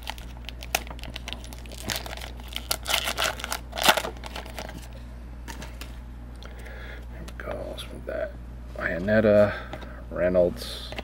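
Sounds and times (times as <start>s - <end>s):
wrapper crinkling and tearing: 0.0s - 4.9s.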